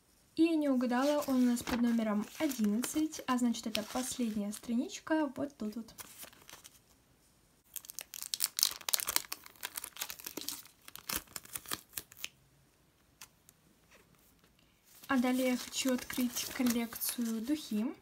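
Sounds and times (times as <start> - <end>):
sticker peeling crackle: 7.8 - 12.3.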